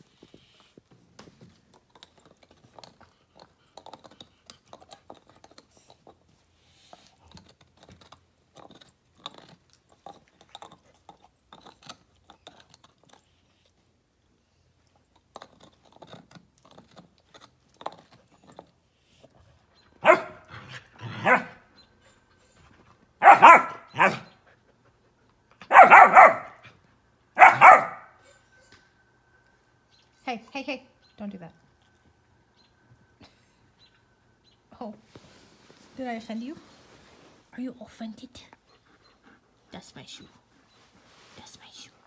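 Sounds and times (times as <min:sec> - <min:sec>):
dogs mouthing and chewing: 0:00.0 - 0:14.0, 0:14.6 - 0:21.9
dog barking loudly: 0:20.0 - 0:21.6, 0:23.2 - 0:24.3, 0:25.6 - 0:26.7, 0:27.4 - 0:28.1.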